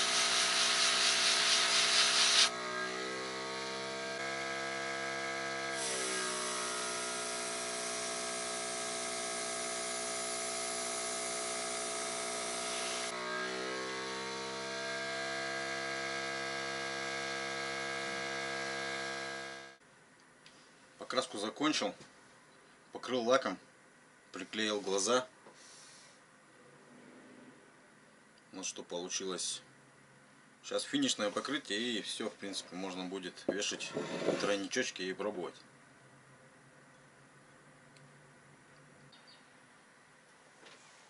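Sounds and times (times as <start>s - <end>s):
airbrush spraying with a hiss: 0.0s - 2.5s, 12.4s - 13.1s
air compressor humming: 0.0s - 13.2s, 13.9s - 19.8s.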